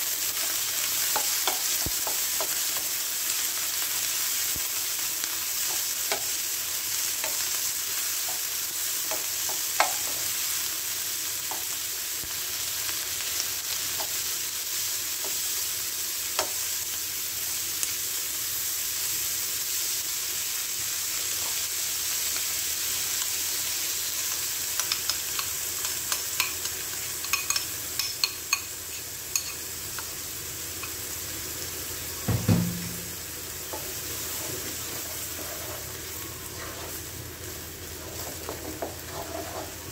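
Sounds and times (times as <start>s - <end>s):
vegetables sizzling in a wok: 0.0s - 39.9s
spatula tapping and scraping pan: 0.9s - 3.0s, 8.2s - 10.3s, 24.3s - 28.7s, 29.3s - 30.1s, 38.2s - 39.9s.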